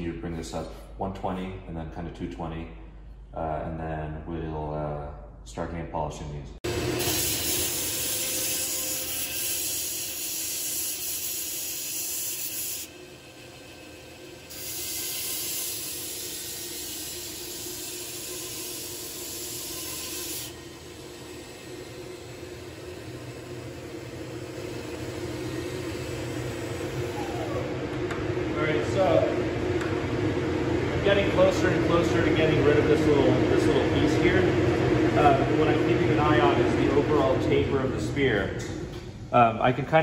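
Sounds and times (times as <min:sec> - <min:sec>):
steel grinding on belt grinder: 0:06.7 - 0:27.7
grinder motor hum: 0:06.7 - 0:37.3.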